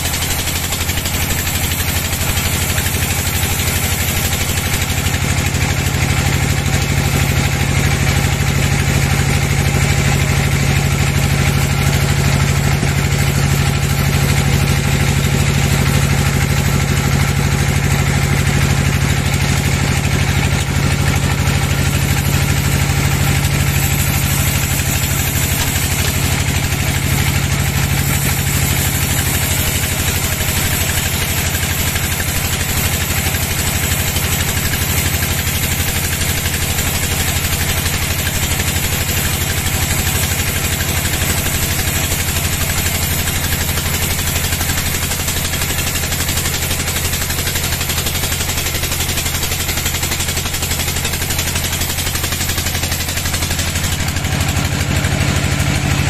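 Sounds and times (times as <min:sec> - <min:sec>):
band sawmill cutting log: 0:00.0 - 0:56.0.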